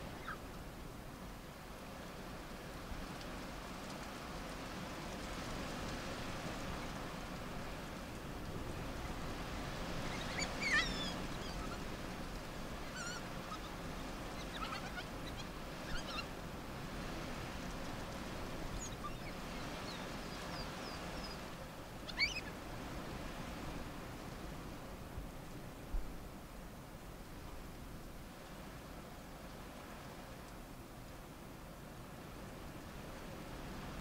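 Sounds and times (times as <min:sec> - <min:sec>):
steady background hiss: 0:00.0 - 0:34.0
wild dogs twittering: 0:10.0 - 0:12.0, 0:12.8 - 0:16.4, 0:18.7 - 0:22.5
high-pitched chirps and squeaks: 0:10.1 - 0:11.8, 0:12.9 - 0:13.7, 0:22.1 - 0:22.5.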